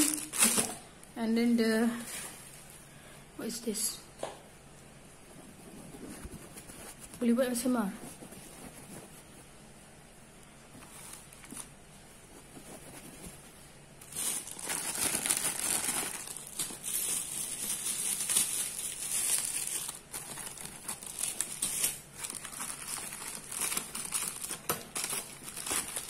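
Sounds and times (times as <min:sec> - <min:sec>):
plastic packaging crinkling: 0:00.0 - 0:00.8, 0:14.0 - 0:26.0.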